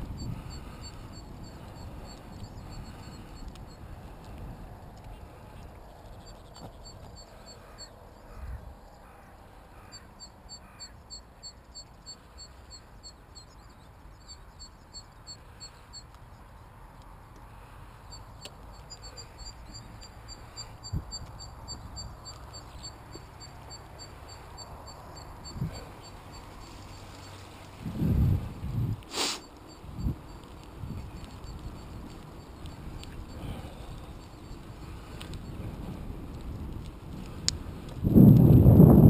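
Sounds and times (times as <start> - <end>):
low wind rumble on microphone: 0.0 - 8.8, 18.7 - 39.0.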